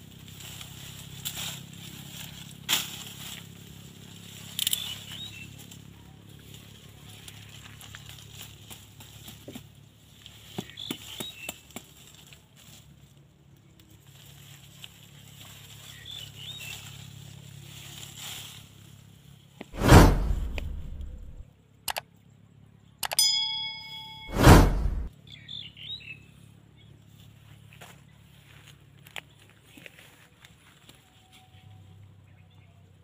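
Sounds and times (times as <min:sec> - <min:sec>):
twigs rustling and clicking: 0:00.2 - 0:19.7
loud whoosh: 0:19.8 - 0:21.4, 0:24.3 - 0:25.1
ringing bell chime: 0:23.0 - 0:24.3.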